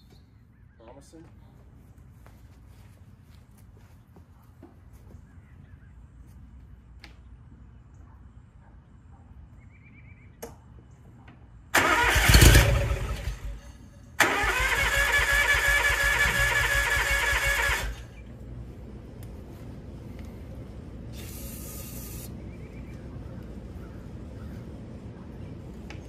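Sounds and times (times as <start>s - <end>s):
engine electric starter cranking: 11.8s - 13.6s, 14.2s - 18.1s.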